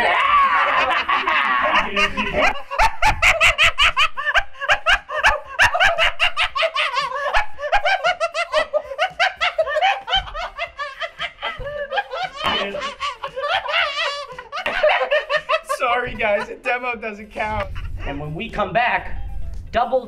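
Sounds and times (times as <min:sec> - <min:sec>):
men laughing hard: 0:00.0 - 0:18.4.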